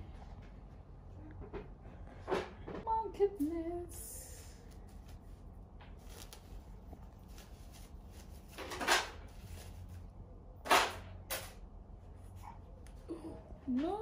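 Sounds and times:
diaper crinkling: 4.6s - 9.9s.

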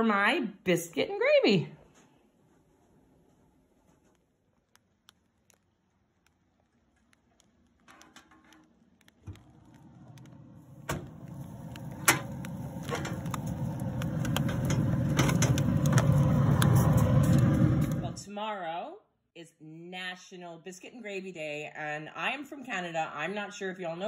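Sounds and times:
smoker low rushing noise: 9.2s - 18.2s.

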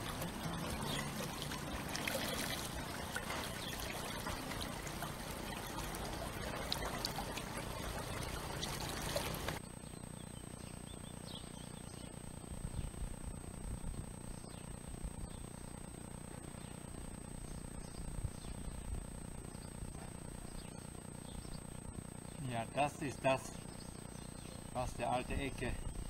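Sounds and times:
brook trickling and splashing: 0.0s - 9.6s.

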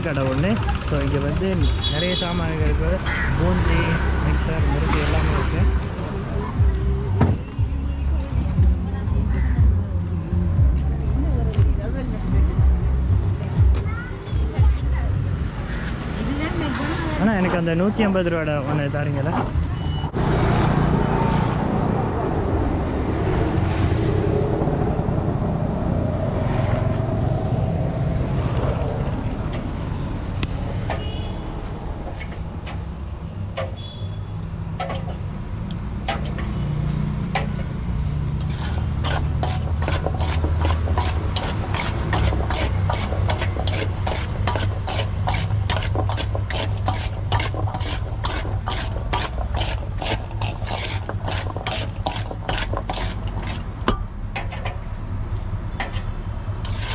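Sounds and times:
low road traffic rumble: 0.0s - 56.9s
metal spoon scraping steel bowl: 36.1s - 54.8s, 55.8s - 56.9s.

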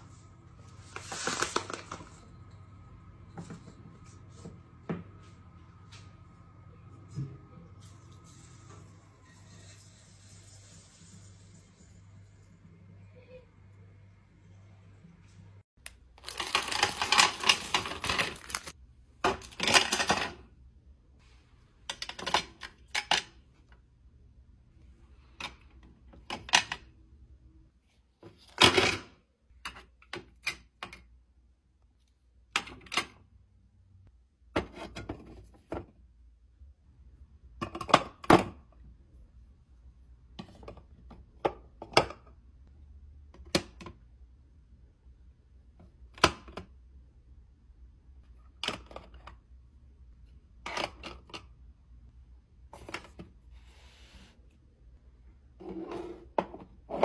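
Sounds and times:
items clacking on plastic trays: 16.2s - 18.7s.

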